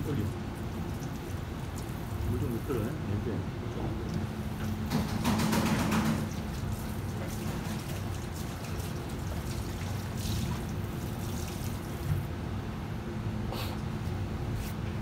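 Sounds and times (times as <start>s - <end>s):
water running from tap: 0.0s - 2.6s, 6.1s - 12.3s.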